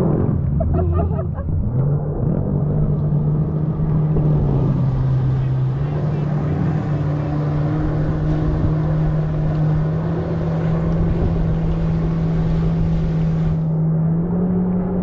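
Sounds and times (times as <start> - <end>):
watercraft engine droning: 0.0 - 15.0.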